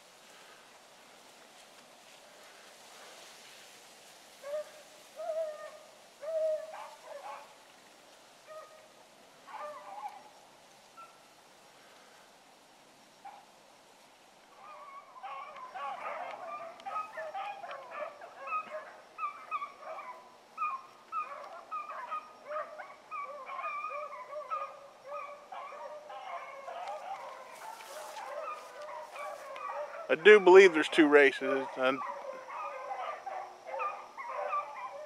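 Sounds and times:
hounds baying: 4.4 - 7.6, 8.4 - 10.4, 14.5 - 35.0.

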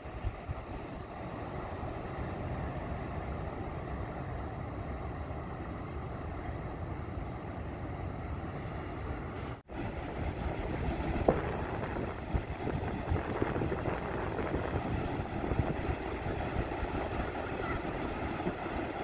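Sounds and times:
ocean surf breaking on beach: 0.0 - 19.0
wind buffeting microphone: 9.2 - 19.0.

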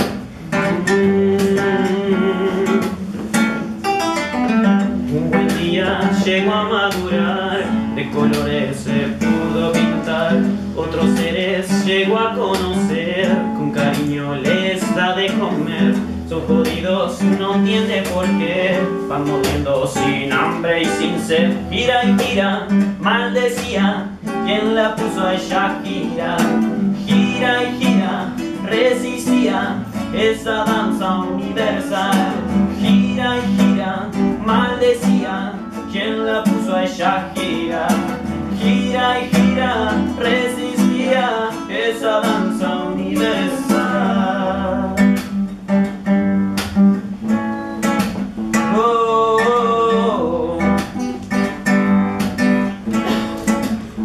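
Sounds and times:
man singing: 0.0 - 3.4, 4.7 - 45.5, 48.6 - 51.7
acoustic guitar strumming: 0.0 - 54.0.

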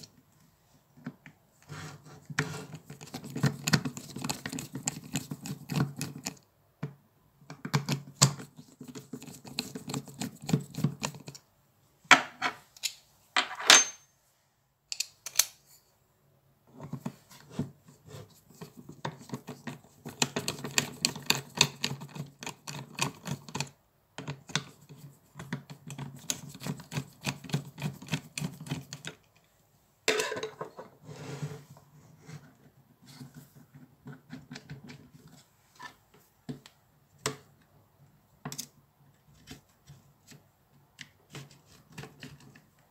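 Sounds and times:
screwdriver clicking and scraping: 14.9 - 15.6.

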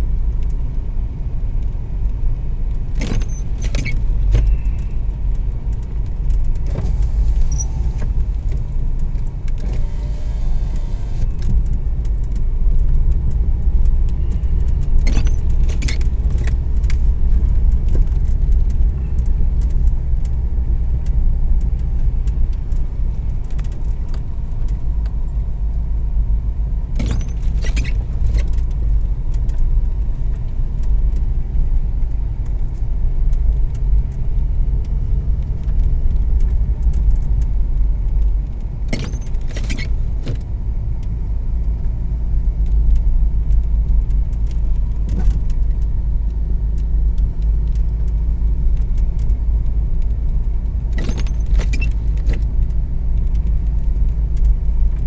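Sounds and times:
engine and tyres rumbling: 0.0 - 55.0
windshield wiper scraping snowy glass: 6.6 - 8.4, 9.6 - 11.3.

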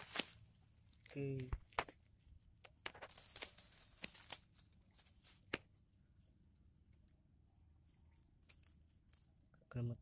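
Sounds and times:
dry leaf litter crackling: 0.0 - 2.0, 2.8 - 5.8.

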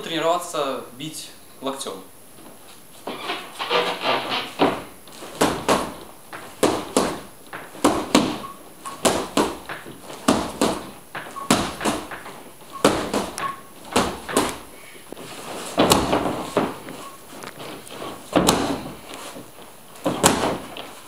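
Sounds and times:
strikes slapping padded pad: 4.0 - 14.6, 15.7 - 17.0, 18.3 - 19.0, 20.0 - 20.9.

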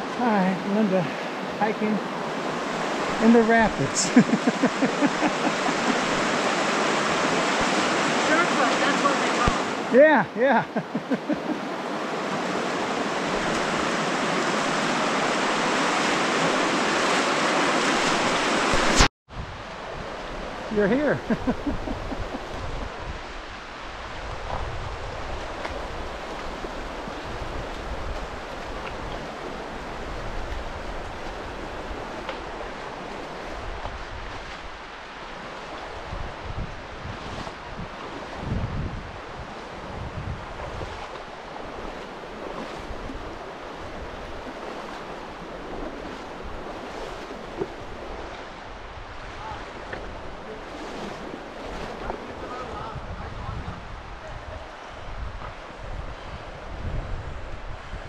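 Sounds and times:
river water rushing: 0.0 - 53.2
wind buffeting microphone: 21.2 - 34.9, 35.6 - 58.0.

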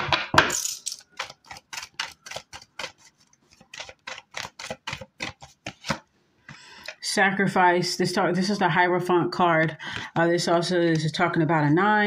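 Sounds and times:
cards being shuffled: 1.1 - 6.1
soft rustle of cards: 1.4 - 6.2.

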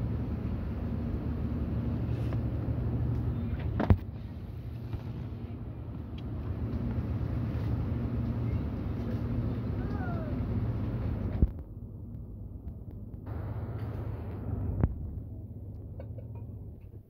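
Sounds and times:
supermarket background hum: 0.0 - 17.0.

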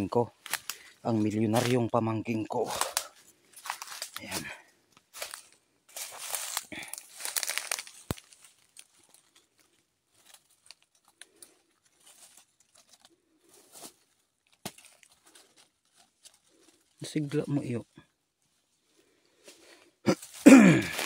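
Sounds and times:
dry leaves rustling and crackling: 0.4 - 1.9, 2.6 - 17.8.

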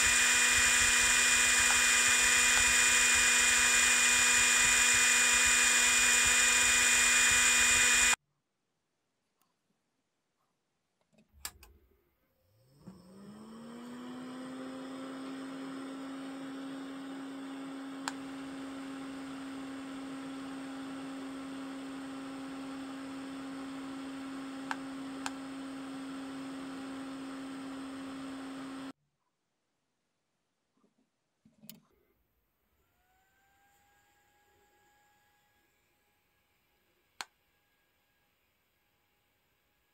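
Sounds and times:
cooling fan whirring: 0.0 - 8.2.

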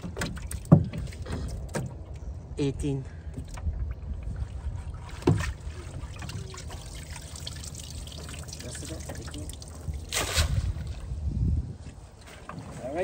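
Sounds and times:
water dripping off a net: 6.2 - 10.7.

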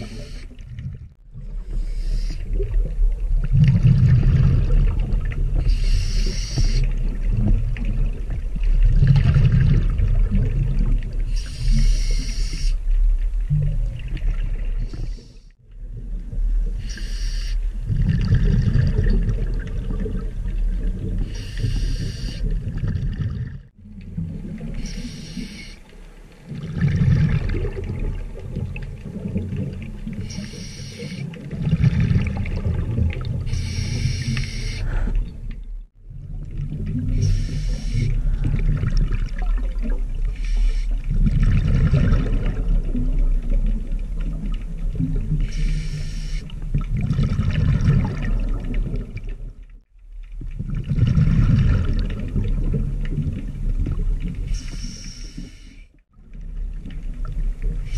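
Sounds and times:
hissing regulator inhalation: 0.0 - 0.6, 24.8 - 25.9, 30.3 - 31.2, 33.5 - 35.1
exhaled bubbles rumbling: 0.0 - 16.9, 17.7 - 25.6, 26.2 - 45.6, 46.4 - 54.8, 56.1 - 57.9.

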